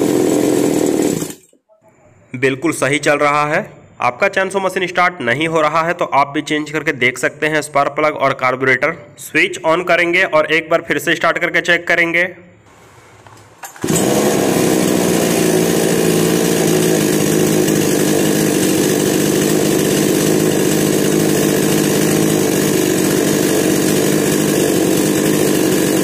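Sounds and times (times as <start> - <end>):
chainsaw engine running: 0.0 - 1.4, 13.6 - 26.0.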